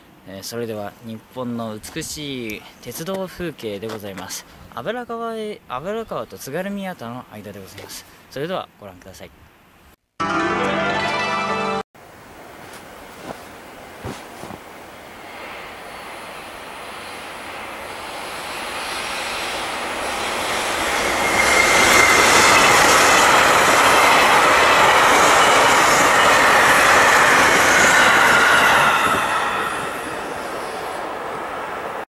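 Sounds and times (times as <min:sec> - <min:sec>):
train rail noise: 0:12.1 - 0:32.0
train whine dropping in pitch: 0:15.2 - 0:32.0.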